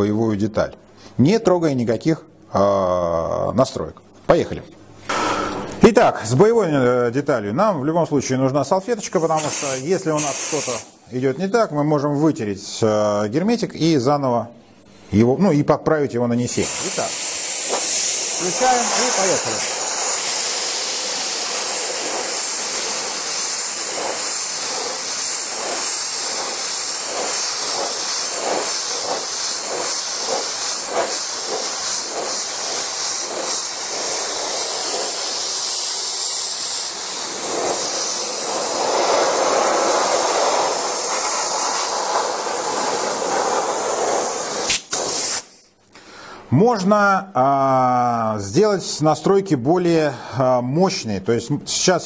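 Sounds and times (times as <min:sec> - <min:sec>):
spray gun hissing: 0:09.2 - 0:11.0, 0:16.5 - 0:45.7.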